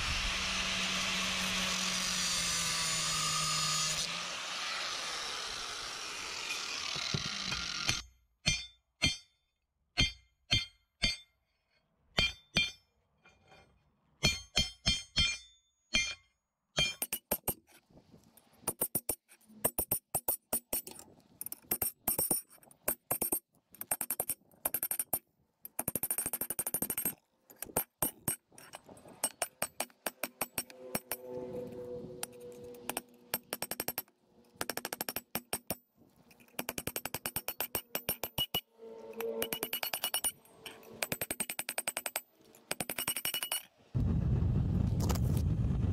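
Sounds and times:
hammer striking sheet metal: 14.2s - 17.3s.

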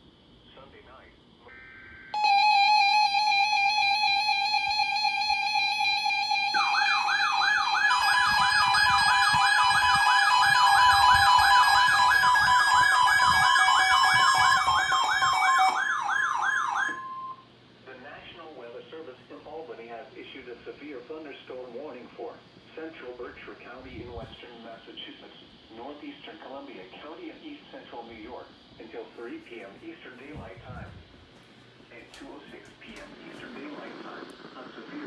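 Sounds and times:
warbling siren-like alert tone: 1.5s - 17.4s
steady weather radio tone: 4.2s - 15.8s, 16.8s - 31.0s, 31.9s - 35.0s
two-tone attention signal: 16.9s - 17.4s.

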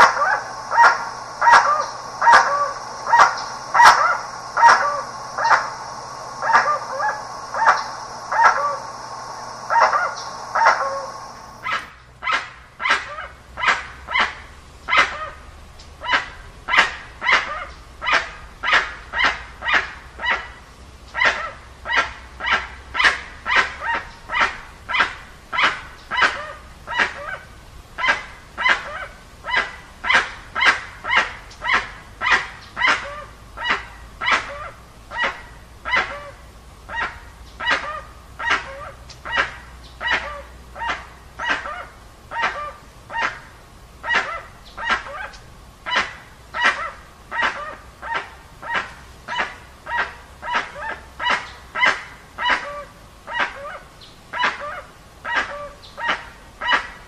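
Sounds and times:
bird calling: 0.0s - 11.9s.

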